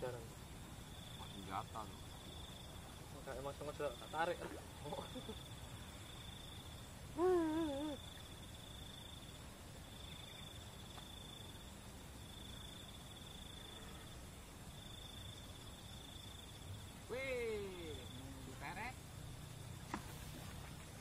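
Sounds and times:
cricket trilling: 0:00.0 - 0:21.0
wavering humming voice: 0:07.1 - 0:08.2.

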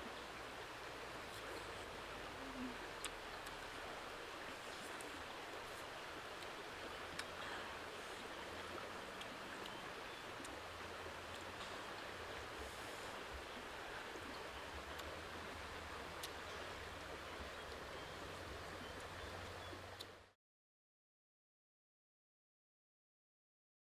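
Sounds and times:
stream running over rocks: 0:00.0 - 0:20.3
faint clicks: 0:04.7 - 0:07.6, 0:14.2 - 0:15.2, 0:16.0 - 0:18.0, 0:18.7 - 0:20.2.

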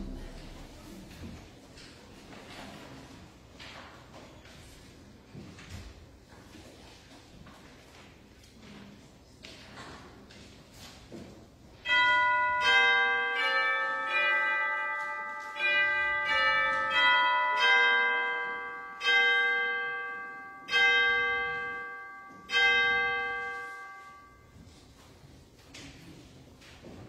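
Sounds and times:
church bell chimes: 0:00.0 - 0:00.9, 0:11.8 - 0:24.7.

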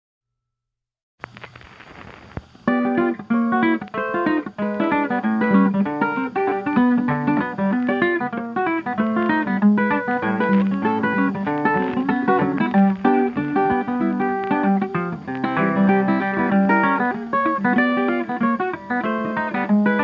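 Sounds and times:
faint hiss: 0:01.2 - 0:20.0
ragtime music: 0:02.8 - 0:20.0.

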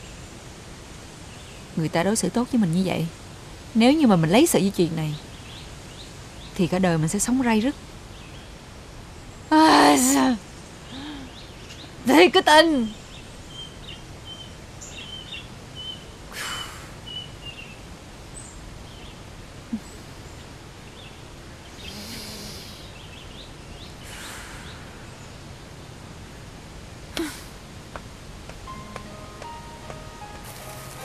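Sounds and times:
outdoor noise bed: 0:00.0 - 0:31.0
faint bird chirps: 0:04.2 - 0:17.8, 0:18.4 - 0:25.9.

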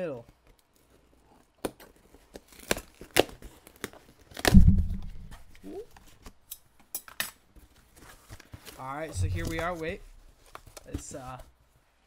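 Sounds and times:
tape tearing: 0:01.6 - 0:04.7.

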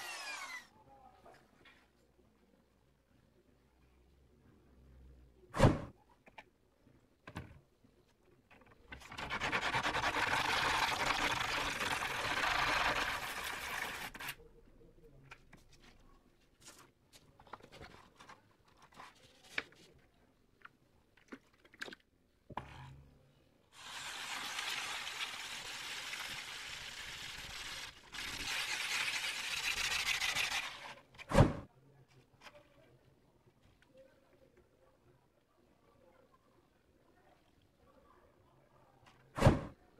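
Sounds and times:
stone scraping on sandpaper: 0:09.1 - 0:14.4, 0:27.5 - 0:31.0.

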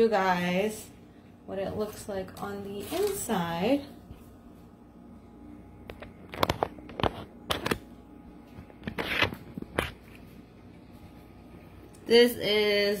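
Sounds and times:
aluminium foil crinkling: 0:01.7 - 0:03.9.

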